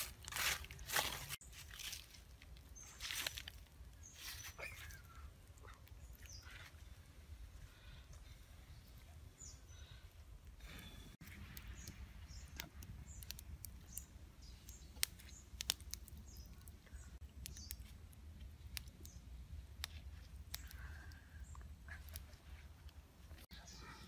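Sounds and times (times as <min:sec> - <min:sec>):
wood fire crackling and popping: 0:00.0 - 0:06.6, 0:10.3 - 0:23.5
faint high bird chirps: 0:04.0 - 0:06.8, 0:08.6 - 0:15.6.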